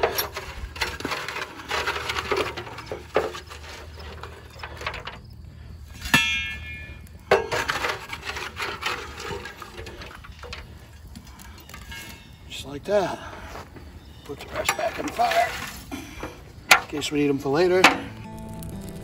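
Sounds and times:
shovel scraping charcoal: 0.0s - 5.2s, 5.9s - 10.8s, 11.4s - 12.4s, 13.1s - 17.0s
coals clinking: 0.0s - 19.0s.

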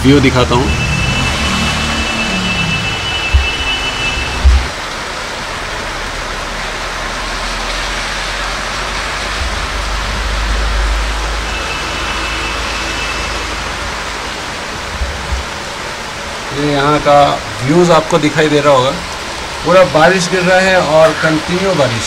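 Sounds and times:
heavy rain pouring: 0.0s - 22.0s
low rumble: 0.8s - 4.9s, 5.5s - 12.7s.

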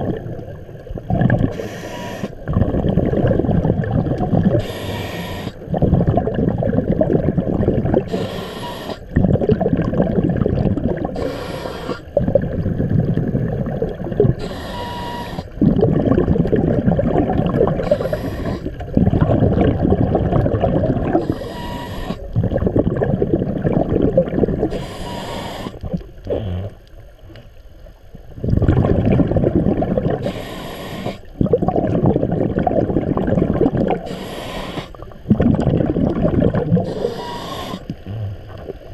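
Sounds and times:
bubbling exhale: 1.0s - 26.8s, 28.4s - 38.9s
regulator hissing inhale: 1.5s - 2.4s, 4.6s - 5.6s, 8.1s - 9.1s, 11.2s - 12.1s, 14.4s - 15.6s, 17.8s - 18.8s, 21.2s - 22.3s, 24.7s - 25.8s, 30.2s - 31.3s, 34.0s - 35.0s, 36.8s - 38.4s.

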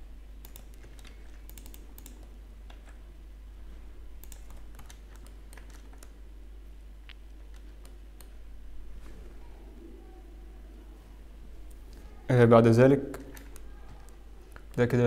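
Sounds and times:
steady low hum: 0.0s - 15.0s
keyboard and mouse clicking: 0.4s - 3.0s, 4.2s - 6.2s, 7.1s - 8.4s, 13.2s - 14.9s.

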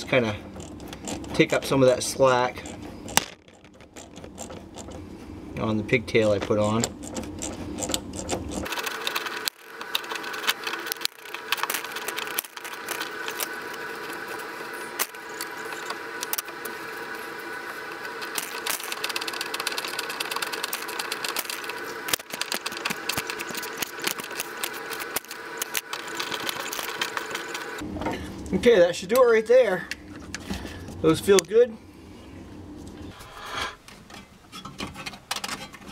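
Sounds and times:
rapid mechanical clicks: 0.0s - 5.0s, 6.2s - 17.1s, 17.8s - 27.8s.

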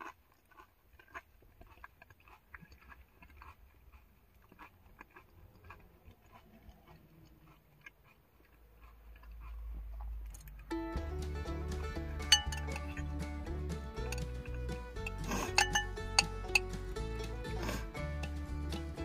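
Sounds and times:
person chewing: 0.0s - 10.7s
low steady rumble: 8.7s - 19.0s.

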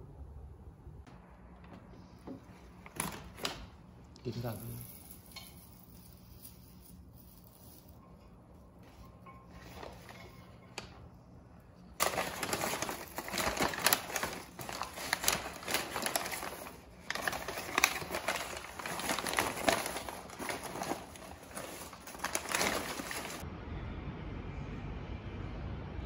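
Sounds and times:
paper wrapping crinkling: 4.3s - 8.1s, 9.2s - 11.0s, 11.9s - 23.4s.

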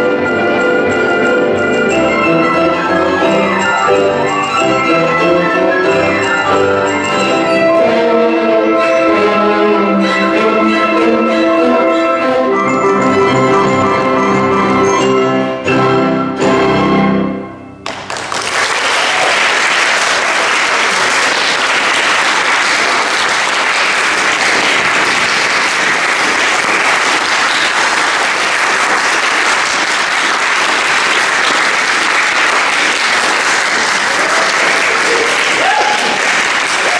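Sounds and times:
audience applauding: 17.8s - 36.9s.

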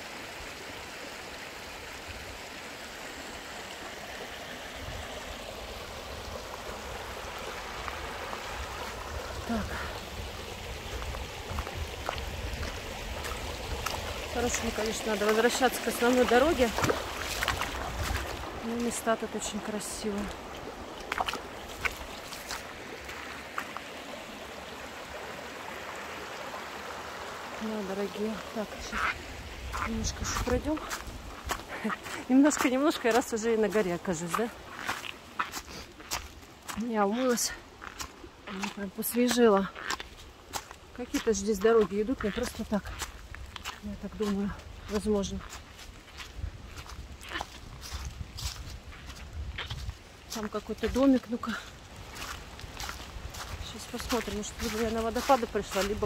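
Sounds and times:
river water rushing: 0.0s - 56.0s.

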